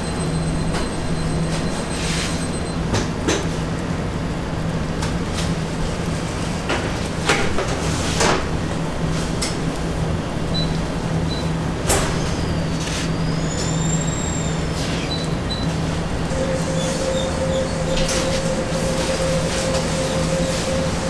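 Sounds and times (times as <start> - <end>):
low machine hum: 14.4 - 21.0.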